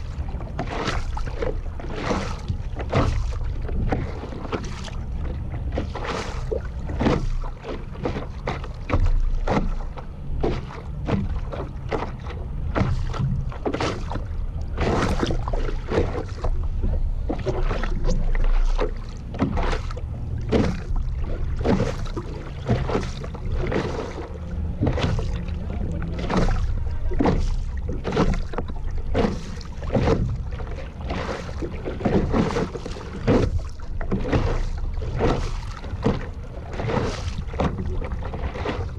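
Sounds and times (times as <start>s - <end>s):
water splashing against paddleboard: 0.0s - 38.9s
low rumble: 8.7s - 38.9s.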